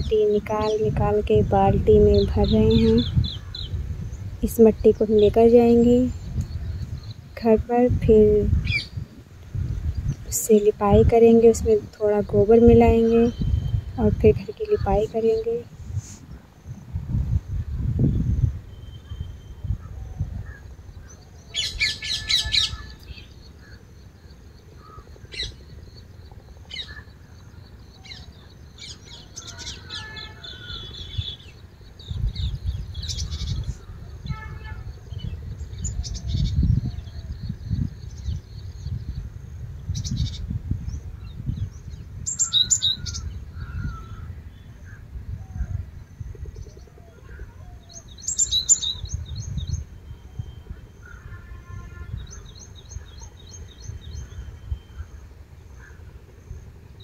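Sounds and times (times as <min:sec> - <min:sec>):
birds chirping and calling: 0:00.0 - 0:16.5, 0:17.7 - 0:39.3, 0:39.9 - 0:57.0.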